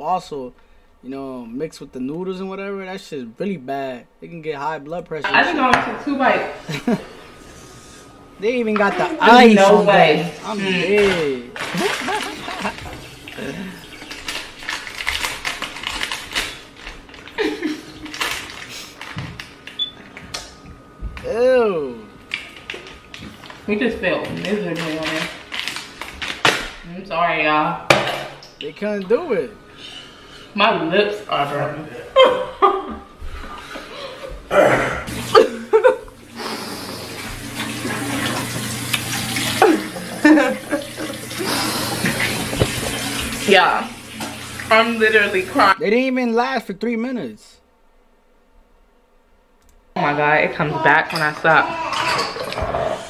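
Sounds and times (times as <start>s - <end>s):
plastic packet crinkling: 13.9s - 19.8s, 22.3s - 26.8s
man gagging and coughing: 34.5s - 35.7s
tap water running into sink: 35.1s - 45.8s.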